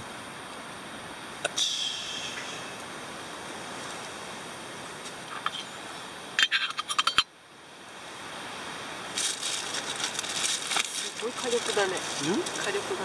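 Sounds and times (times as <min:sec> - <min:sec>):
soft hiss of stove: 0:01.4 - 0:13.0
metal lid clinking on pot: 0:06.4 - 0:07.3.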